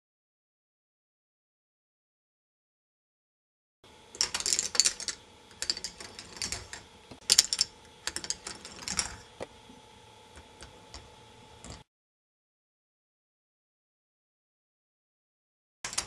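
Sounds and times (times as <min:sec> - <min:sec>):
faint steady hum: 0:03.8 - 0:11.9
balls clicking and clattering on plastic track: 0:04.2 - 0:09.3.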